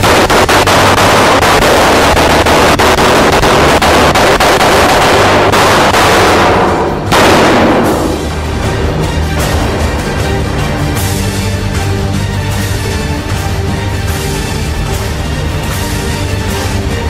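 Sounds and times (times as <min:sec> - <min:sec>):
rapid handgun fire: 0:00.0 - 0:08.3.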